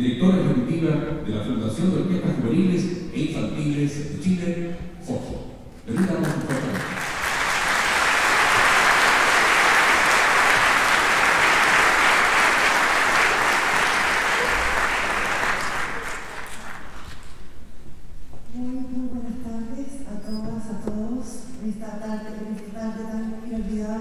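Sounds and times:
audience applauding: 5.9s - 17.3s.

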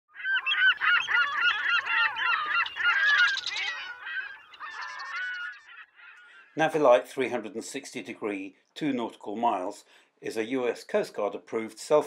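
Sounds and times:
gulls squawking: 0.1s - 7.0s.

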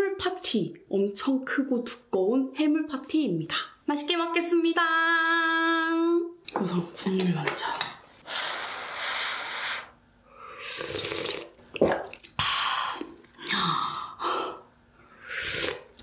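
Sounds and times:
slurping broth from spoon: 10.5s - 11.6s, 15.2s - 16.0s.

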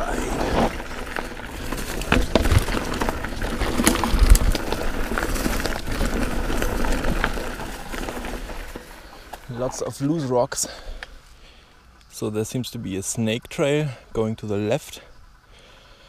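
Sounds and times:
thumps over bumps: 0.0s - 8.8s
bike rattling: 0.0s - 11.7s
tyres crunching on dirt: 0.0s - 14.9s.

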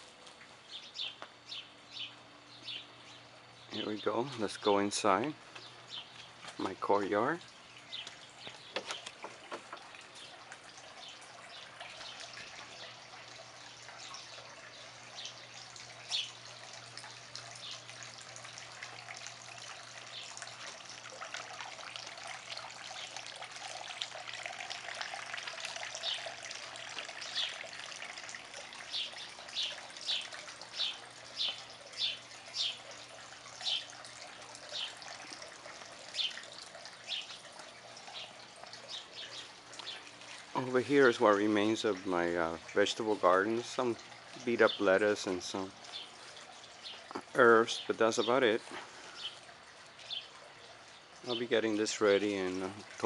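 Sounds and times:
fountain trickling and splashing: 0.0s - 53.0s
bird chirping: 0.6s - 4.6s, 5.5s - 6.5s, 28.9s - 32.9s, 38.1s - 40.0s.

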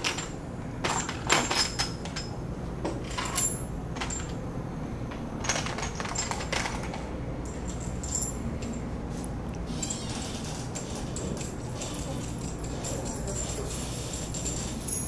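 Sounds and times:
metal bolts clinking: 10.8s - 15.0s.

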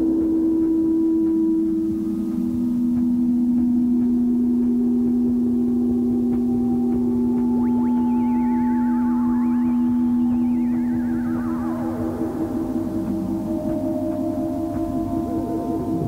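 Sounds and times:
low sustained drone tones: 0.0s - 16.0s
wavering tone sliding down: 5.8s - 16.0s.

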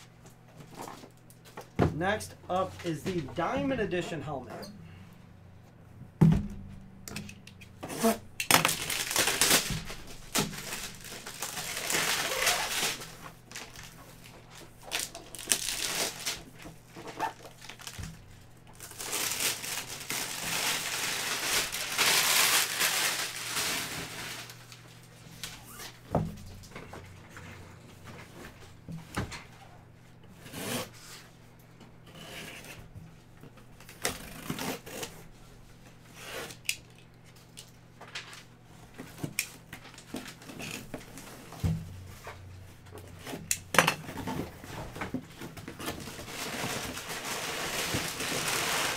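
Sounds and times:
packing tape tearing: 7.2s - 24.8s, 33.8s - 35.2s, 45.5s - 48.9s.

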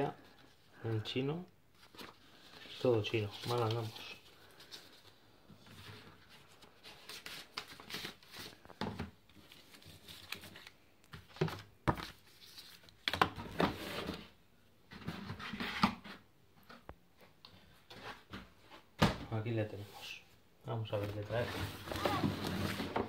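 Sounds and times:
paper rustling and crinkling: 1.7s - 14.2s, 20.9s - 23.0s.

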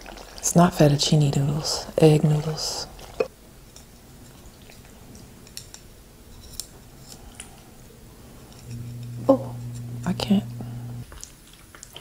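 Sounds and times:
low steady hum: 1.1s - 11.1s.

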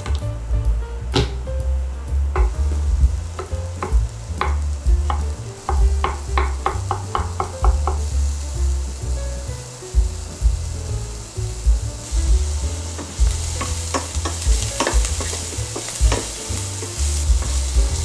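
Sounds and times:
low rumble: 0.0s - 6.6s, 7.7s - 18.0s
food sizzling in frying pan: 1.3s - 18.0s
utensil tapping and scraping pan: 3.4s - 8.1s, 12.3s - 18.0s.

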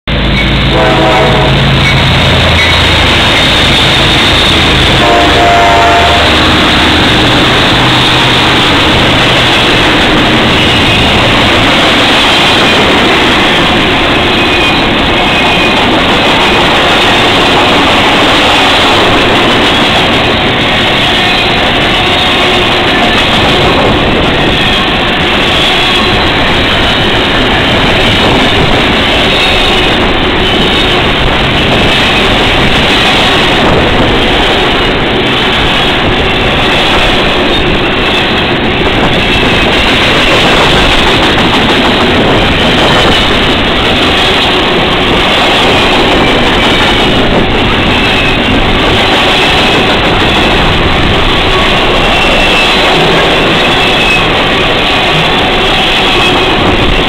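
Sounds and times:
diesel locomotive engine drone: 0.0s - 57.0s
wheel and rail noise: 0.1s - 57.0s
train horn: 0.6s - 2.8s, 4.9s - 7.1s.

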